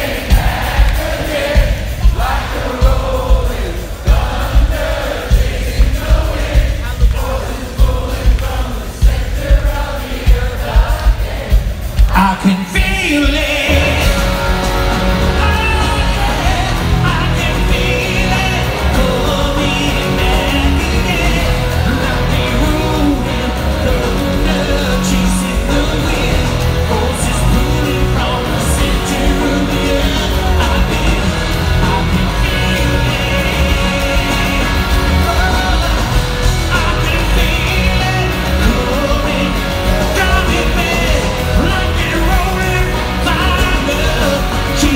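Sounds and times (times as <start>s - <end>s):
rock band playing live: 0.0s - 44.9s
man singing: 12.0s - 14.3s, 15.1s - 44.9s.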